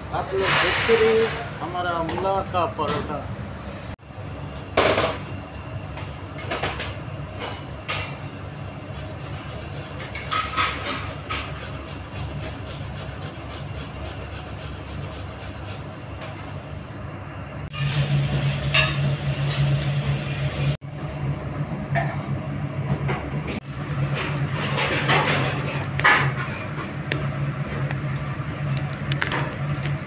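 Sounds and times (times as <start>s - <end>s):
low machine hum: 0.0s - 30.0s
brief scrapes and knocks: 0.4s - 1.5s.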